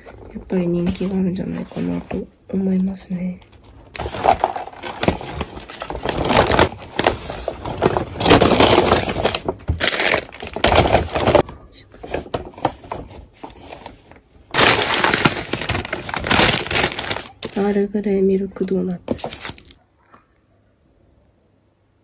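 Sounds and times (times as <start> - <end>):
paper bags rustling: 3.6 - 17.8, 19.0 - 19.8.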